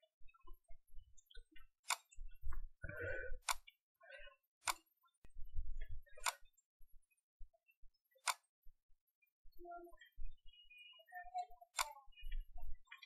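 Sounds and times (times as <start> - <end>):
computer mouse clicking: 4.6 - 4.9, 6.1 - 6.5, 8.2 - 8.5, 11.8 - 13.0.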